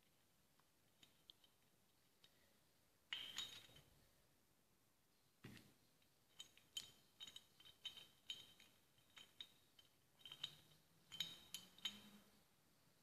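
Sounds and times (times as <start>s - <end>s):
light metallic clicks and clinks: 3.1s - 3.9s, 6.3s - 12.4s.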